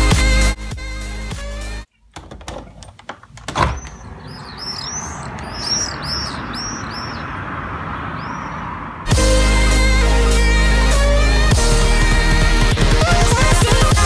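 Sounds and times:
music: 0.0s - 1.9s, 9.1s - 14.0s
city traffic hum: 1.5s - 12.6s
birds chirping: 1.6s - 9.1s
clicks and knock: 2.1s - 4.0s.

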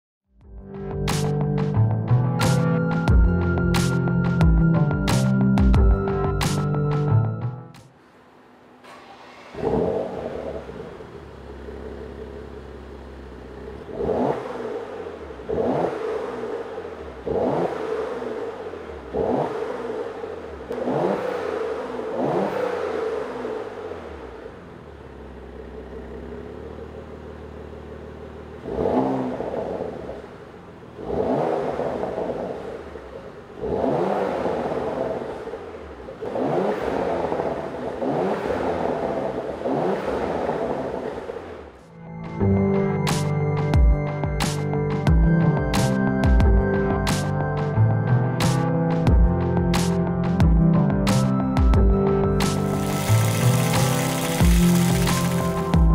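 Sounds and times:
car engine revving: 5.4s - 43.8s, 51.1s - 55.9s
car engine idling: 7.9s - 39.8s, 51.8s - 55.9s.

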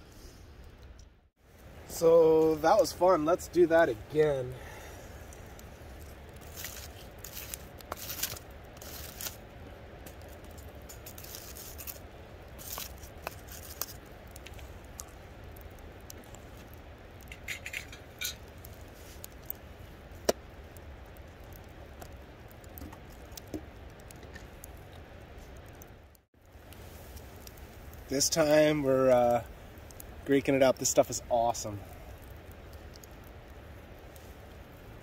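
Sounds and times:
camp cooking gear rustling: 1.6s - 20.4s.

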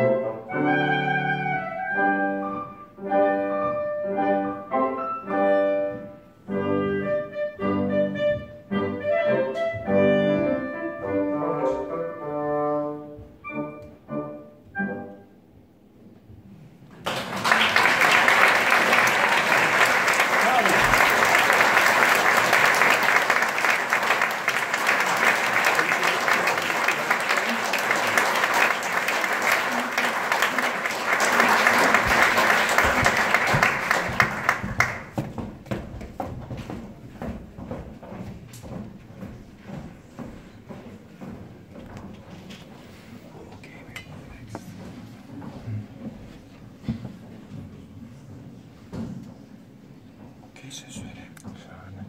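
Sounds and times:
classical chamber music: 0.0s - 16.0s
audience applause: 17.0s - 35.4s.

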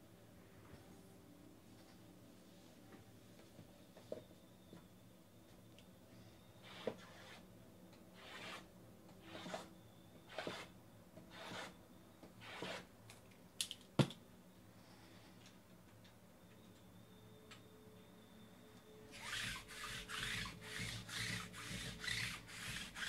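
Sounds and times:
boxes rubbing and scraping: 19.1s - 23.0s.

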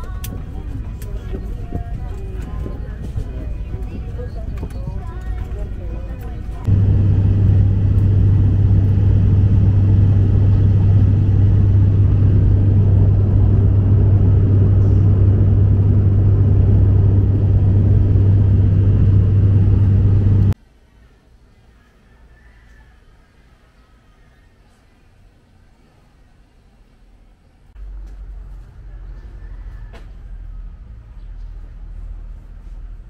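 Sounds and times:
airliner engine drone in cabin: 0.0s - 20.6s.

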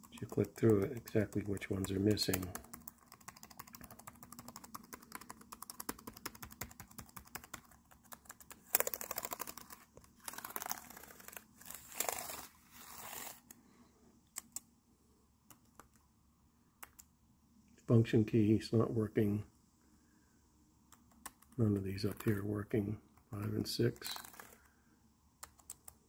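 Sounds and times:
laptop keys clicking: 0.0s - 10.8s, 14.3s - 14.7s, 16.8s - 17.1s, 20.9s - 21.6s, 25.4s - 26.0s.

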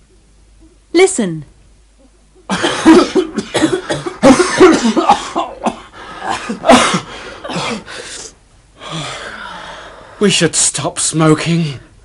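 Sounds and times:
person coughing: 2.5s - 8.0s.

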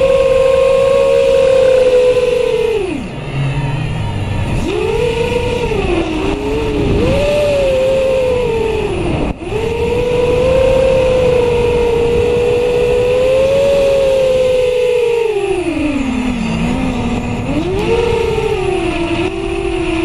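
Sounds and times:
drone propellers whining: 0.0s - 20.0s.

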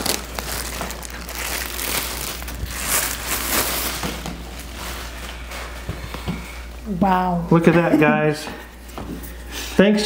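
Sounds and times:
packing material crinkling: 0.0s - 5.8s.

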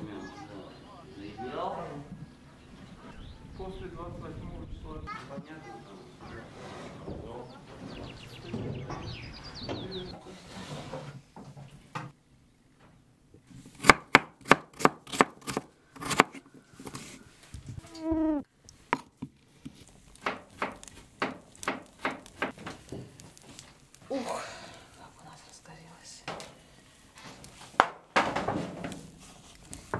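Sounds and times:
bird chirps: 7.4s - 10.2s
knife chopping on wooden board: 13.8s - 17.1s, 20.2s - 22.6s.

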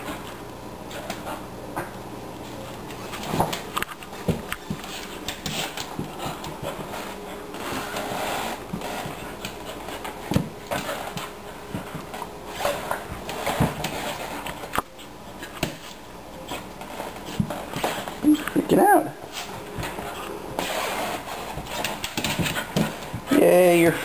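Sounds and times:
towel rustling and dragging: 3.0s - 14.6s, 19.2s - 23.3s.

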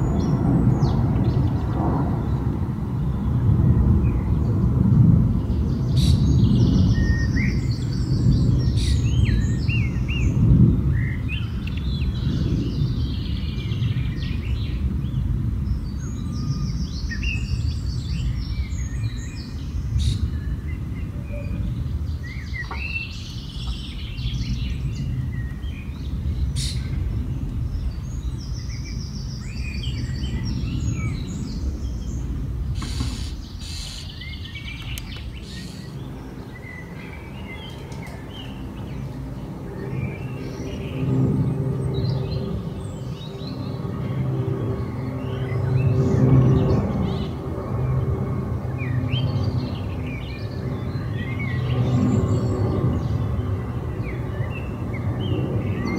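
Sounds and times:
airplane rumble overhead: 0.0s - 55.9s
songbirds singing: 0.0s - 55.9s
sharp clicks: 34.7s - 35.3s.

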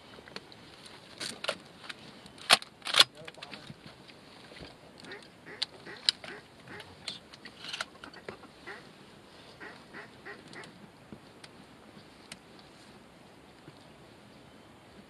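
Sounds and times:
duck quacks: 5.1s - 6.9s, 8.1s - 8.9s, 9.6s - 10.7s.

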